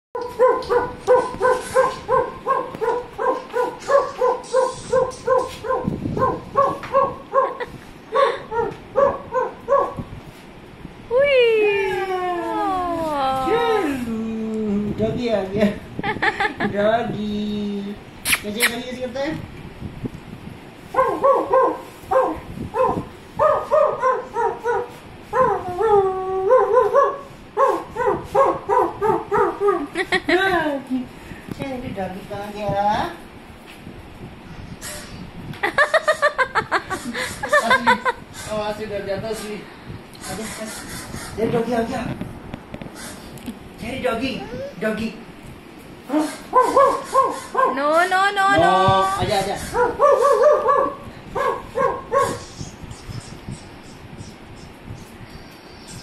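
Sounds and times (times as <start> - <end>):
dog barking: 0.2 - 7.6, 8.5 - 10.0, 20.9 - 29.9, 46.2 - 47.9, 49.7 - 52.4
dog drawn-out call: 46.1 - 47.8, 49.6 - 52.4.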